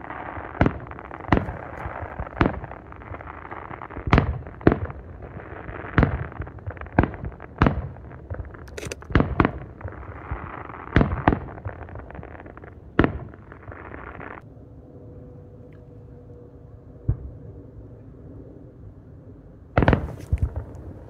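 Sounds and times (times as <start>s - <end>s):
fireworks crackling and hissing: 0.0s - 14.4s, 19.8s - 21.0s.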